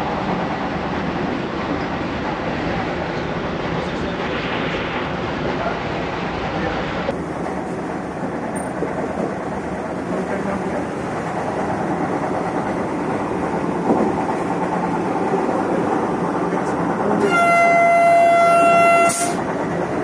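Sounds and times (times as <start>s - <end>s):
train wheels rumbling on rail: 0.0s - 20.0s
train horn blast: 17.2s - 19.4s.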